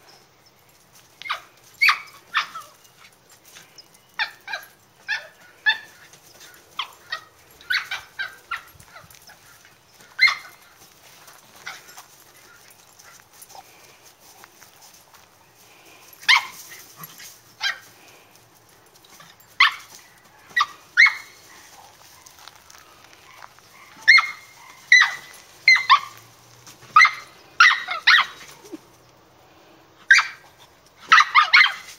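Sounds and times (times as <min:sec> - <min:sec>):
dog barking: 0:27.0 - 0:28.4, 0:31.1 - 0:31.9.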